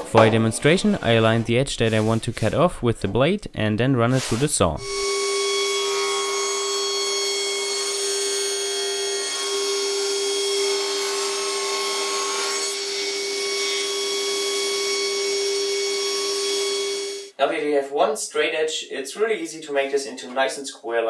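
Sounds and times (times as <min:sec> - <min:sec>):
table saw cutting wood: 0:04.2 - 0:17.3.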